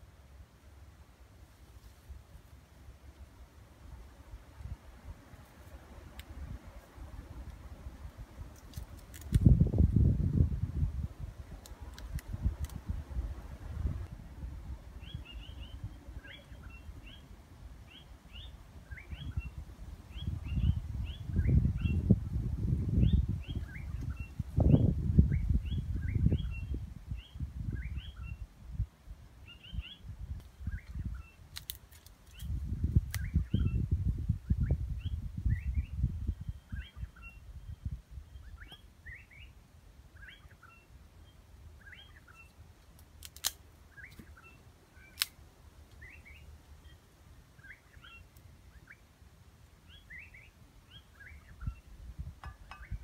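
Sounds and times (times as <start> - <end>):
songbird chirping: 0.0 - 53.0
low gusty rumbling: 9.2 - 16.2, 19.0 - 28.0
sharp clicks: 42.5 - 44.3, 45.1 - 46.0.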